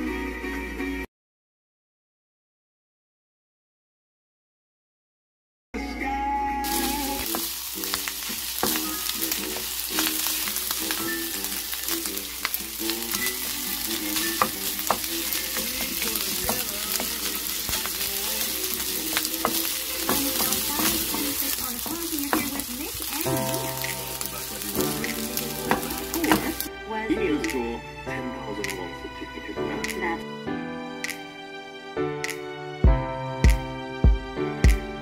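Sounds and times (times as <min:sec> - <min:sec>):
food sizzling in oil: 0:06.6 - 0:26.7
spatula scraping pan: 0:06.7 - 0:26.7.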